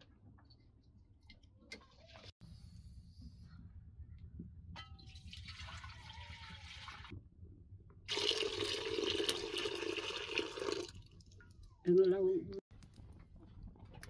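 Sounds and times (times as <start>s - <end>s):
water pouring: 5.0s - 7.1s, 8.1s - 11.8s.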